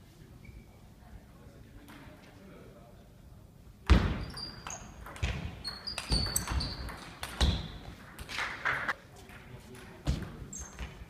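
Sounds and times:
shoes squeaking on floor: 4.2s - 7.9s, 10.4s - 11.0s.

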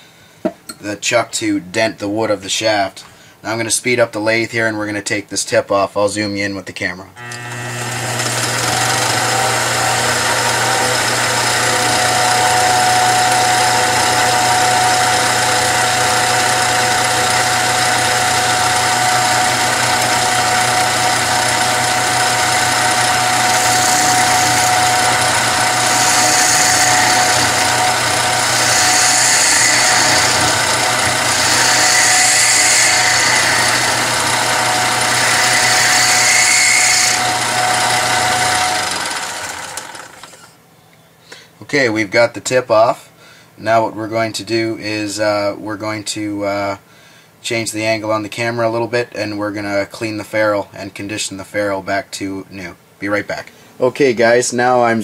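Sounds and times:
lathe humming and whining: 7.2s - 40.5s
cutting tool scraping leather: 15.7s - 38.9s.

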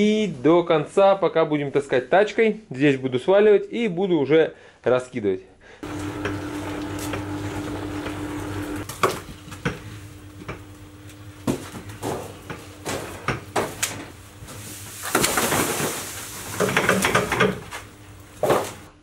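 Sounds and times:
wheelbarrow tray clattering: 11.5s - 18.9s.

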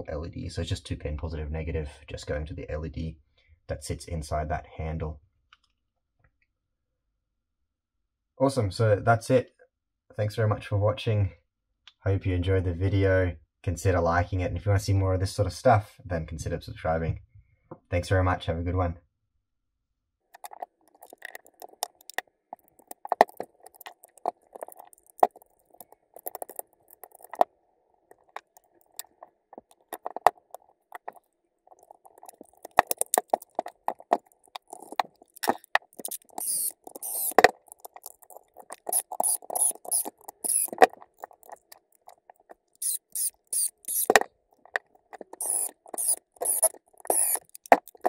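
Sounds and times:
plastic and metal parts clicking: 20.4s - 27.5s, 28.1s - 48.0s
sharp high-pitched clicking: 20.4s - 27.5s, 28.1s - 48.0s.

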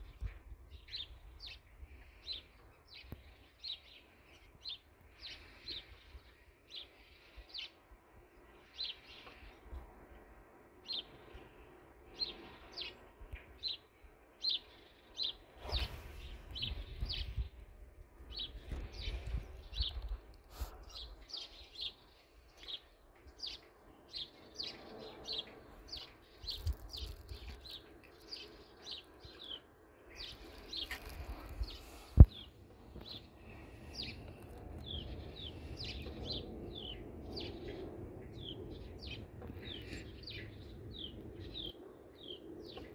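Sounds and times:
bird chirping: 12.1s - 17.5s, 18.3s - 42.9s.

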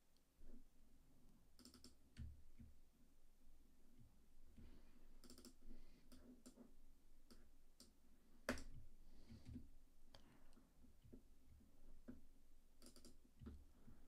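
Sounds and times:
keyboard and mouse clicks: 1.6s - 2.7s, 12.8s - 13.7s.

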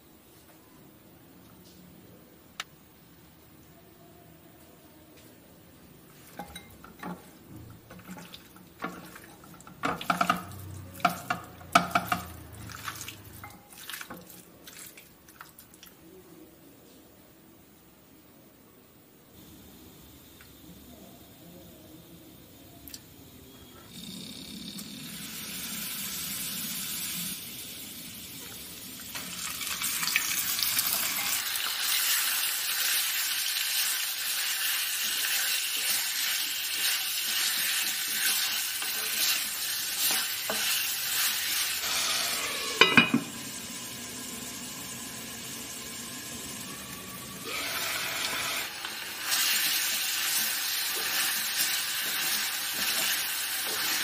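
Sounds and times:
wooden spatula stirring: 6.1s - 15.7s, 35.0s - 41.7s, 49.4s - 54.0s
chicken frying in hot oil: 6.3s - 16.0s, 23.9s - 54.0s.

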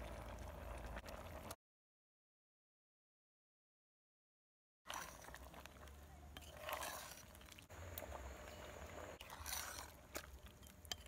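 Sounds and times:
metal spoon stirring stew: 4.9s - 11.0s.

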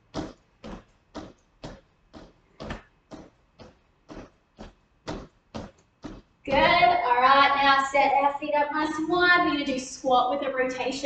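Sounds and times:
feet thudding on wooden floor: 0.0s - 6.8s.

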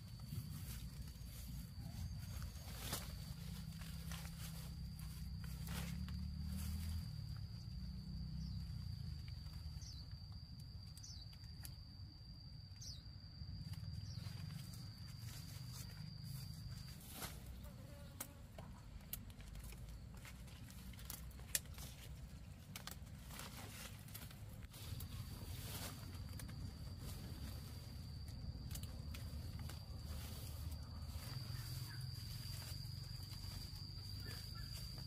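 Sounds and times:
insect singing high-pitched note: 25.8s - 35.0s.

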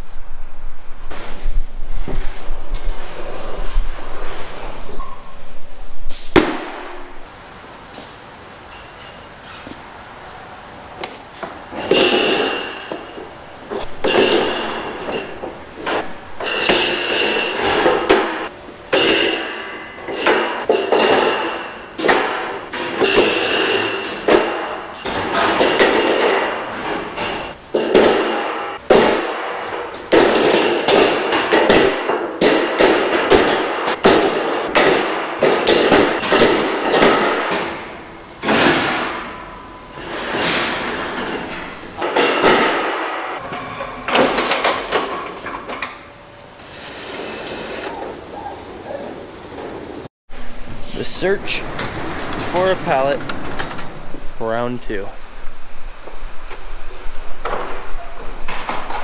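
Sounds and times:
steel beams clanging: 11.7s - 45.7s.

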